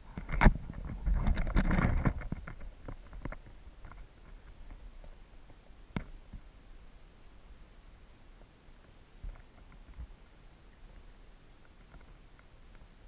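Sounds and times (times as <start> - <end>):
underwater stream noise: 0.0 - 13.0
underwater knocks and clicks: 0.1 - 6.4.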